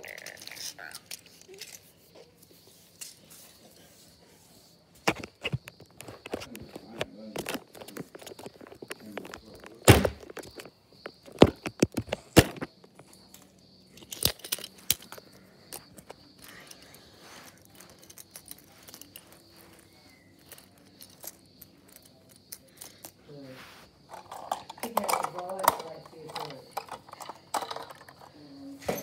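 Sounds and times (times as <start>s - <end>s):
toy vehicles clicking on rug: 0.0s - 4.1s, 5.0s - 29.0s
soft rustling: 0.2s - 13.3s, 14.6s - 24.5s
handling knocks and thumps: 5.0s - 13.2s.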